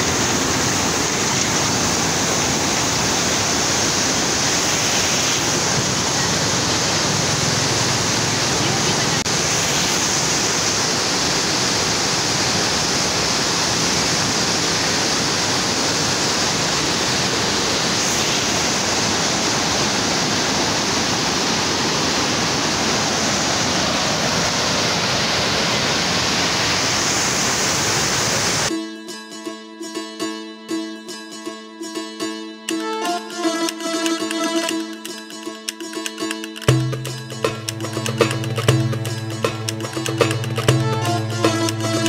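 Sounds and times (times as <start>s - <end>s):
floodwater roaring through dam gates: 0.0s - 28.7s, 32.9s - 42.0s
plucked-string music: 28.7s - 42.0s.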